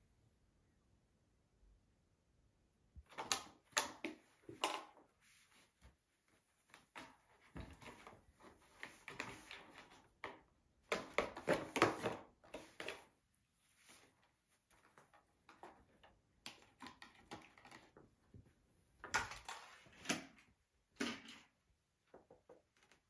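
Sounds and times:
kitten scuffling and clattering: 0:03.1 - 0:21.5.

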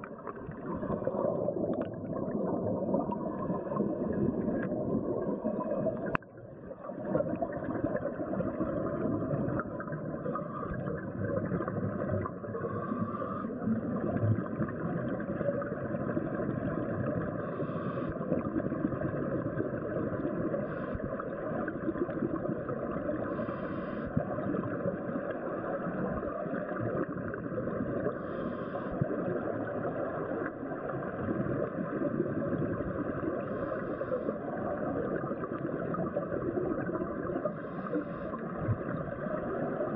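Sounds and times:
underwater crackling hiss: 0:11.5 - 0:14.2, 0:17.0 - 0:19.2, 0:19.9 - 0:25.2, 0:27.9 - 0:30.4, 0:32.5 - 0:39.5.

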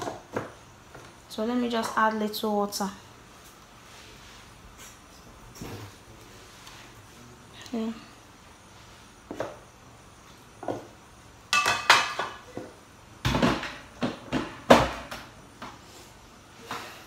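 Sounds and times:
kitchen items clattering on worktop: 0:11.5 - 0:15.8.

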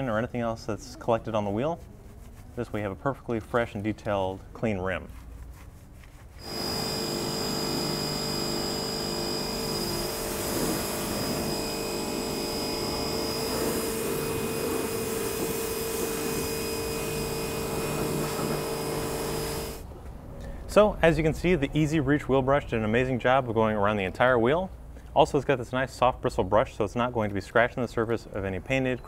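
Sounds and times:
motor drone: 0:06.4 - 0:19.8.

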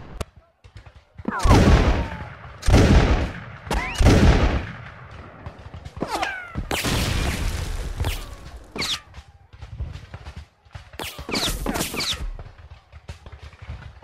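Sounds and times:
musket volley fire: 0:00.0 - 0:09.0
musket shots: 0:00.0 - 0:14.0.

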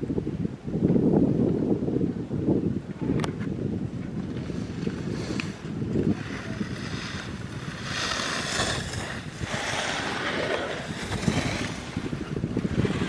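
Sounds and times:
wind buffeting microphone: 0:00.0 - 0:13.0
high hiss: 0:04.4 - 0:13.0.

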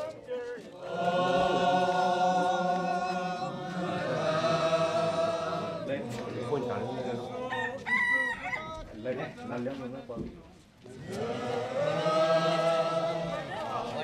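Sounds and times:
group chanting in unison: 0:00.0 - 0:07.7, 0:10.9 - 0:14.0.

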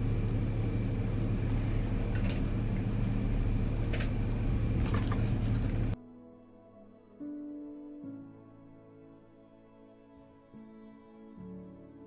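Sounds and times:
room hum: 0:00.0 - 0:06.0
faint soft music: 0:00.0 - 0:12.0.

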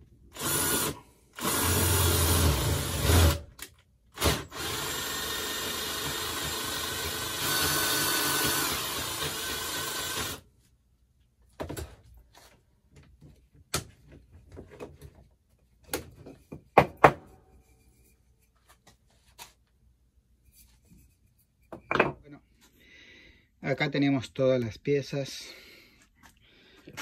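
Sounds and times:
cordless drill boring into wood: 0:00.3 - 0:03.6, 0:04.2 - 0:10.4
knocks and clicks of handling: 0:12.9 - 0:17.3.

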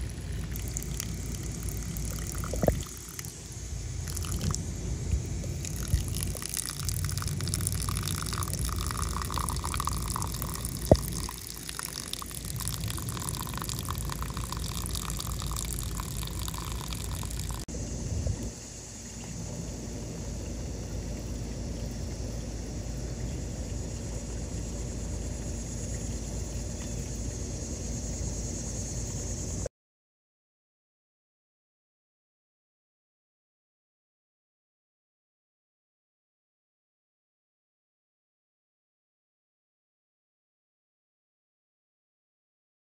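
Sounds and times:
hose water pouring into pond: 0:00.0 - 0:17.7.

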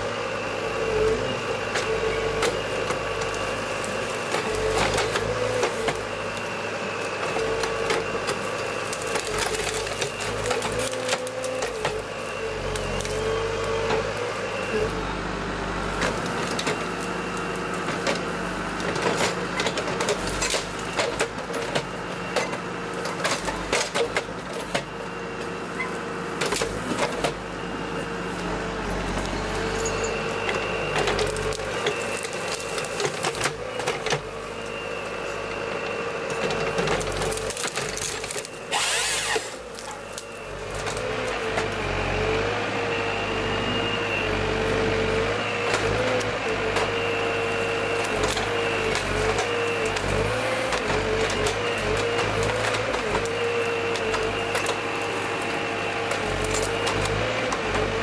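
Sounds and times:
machine engine and hydraulics whining: 0:00.0 - 0:58.0
wood cracking and snapping: 0:07.4 - 0:12.0, 0:31.0 - 0:34.3, 0:36.4 - 0:41.3, 0:48.0 - 0:55.2, 0:56.1 - 0:57.8.

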